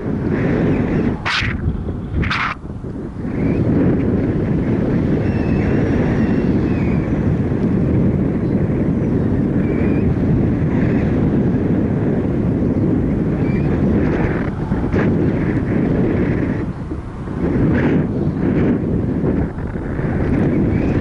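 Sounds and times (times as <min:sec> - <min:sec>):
wind rushing over microphone: 0:00.0 - 0:21.0.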